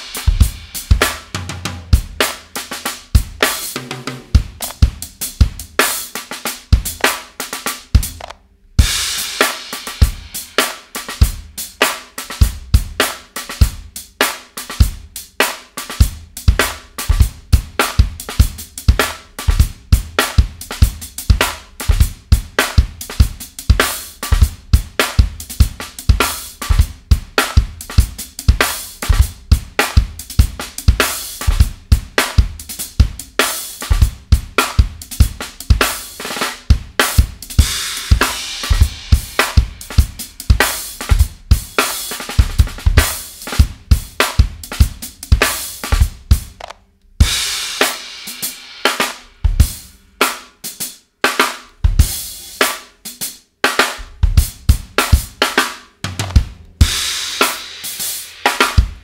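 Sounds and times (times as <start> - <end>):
loud cymbal wash: 0.0 - 1.2, 37.5 - 41.0
hi-hat strokes: 0.0 - 8.0, 8.8 - 46.5, 52.0 - 53.5
snare drum: 0.0 - 59.0
kick drum: 16.0 - 36.0.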